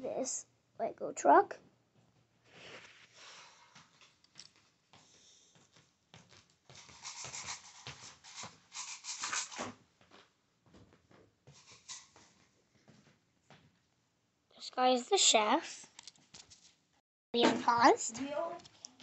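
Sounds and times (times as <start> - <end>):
handling noise rubbing: 6.7 - 9.8
loud scrapes: 6.9 - 9.7.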